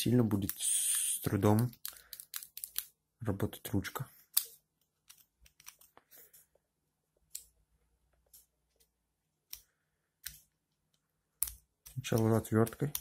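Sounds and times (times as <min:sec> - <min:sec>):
faint metal parts clicking: 0:01.4 - 0:02.9.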